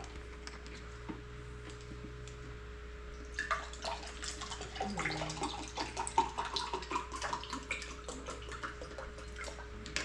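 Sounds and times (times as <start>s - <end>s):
drink pouring into a glass: 3.2s - 9.7s.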